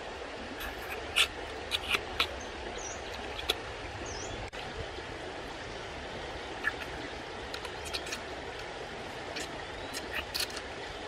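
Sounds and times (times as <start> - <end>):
rocky stream rushing: 0.0 - 11.0
sucking meat from shell: 0.6 - 2.4.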